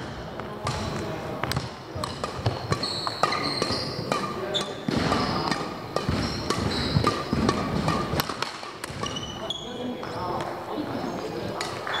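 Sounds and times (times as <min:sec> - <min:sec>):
rackets striking shuttlecock: 0:00.4 - 0:10.6, 0:11.5 - 0:12.0
shoes squeaking on wooden floor: 0:02.5 - 0:07.8, 0:08.9 - 0:11.2.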